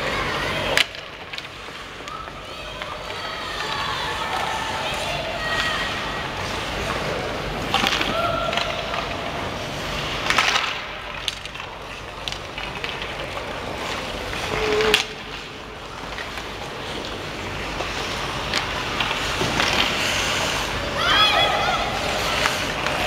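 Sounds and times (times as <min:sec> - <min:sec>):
hockey sticks clacking on puck: 0:00.0 - 0:23.0
ice skates scraping on ice: 0:00.0 - 0:23.0.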